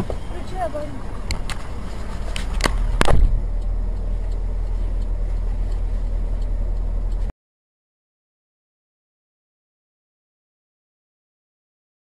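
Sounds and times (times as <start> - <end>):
car engine and road noise: 0.0 - 7.3
sharp knock: 3.0 - 3.4.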